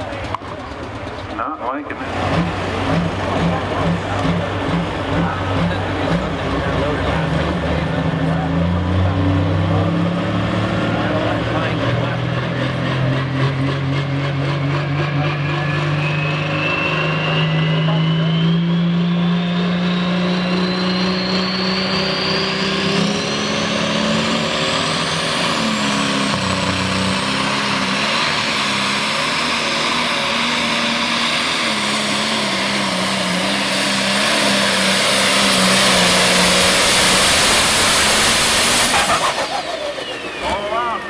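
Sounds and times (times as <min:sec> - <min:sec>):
tractor engine at full power: 0:00.0 - 0:41.0
high whine: 0:11.0 - 0:41.0.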